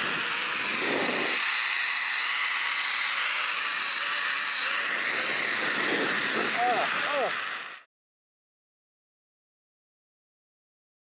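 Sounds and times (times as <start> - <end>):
zipline pulleys whirring on cable: 0.0 - 7.9.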